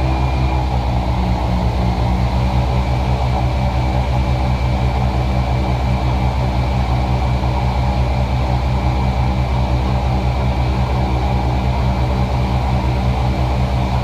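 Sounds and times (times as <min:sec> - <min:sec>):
boat motor running: 0:00.0 - 0:05.6.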